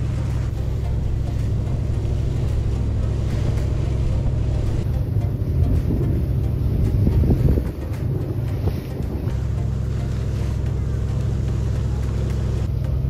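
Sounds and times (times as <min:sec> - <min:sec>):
wind gusts on microphone: 0:00.0 - 0:09.6
ferry engine drone: 0:00.0 - 0:13.0.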